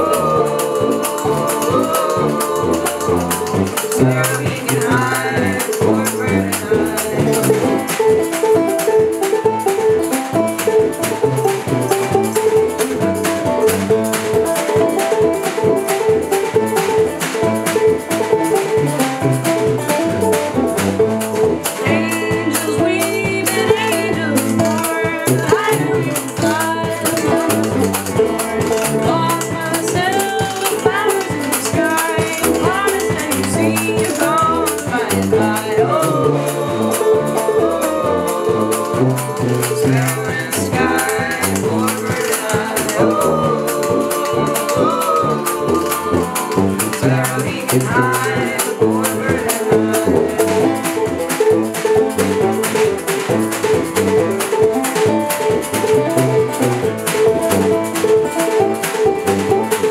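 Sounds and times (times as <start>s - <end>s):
woman singing: 0.0s - 8.4s, 21.6s - 51.2s
acoustic guitar: 0.0s - 59.9s
banjo: 0.0s - 59.9s
tuba bass line: 0.0s - 59.9s
washboard and snare rhythm: 0.0s - 59.9s.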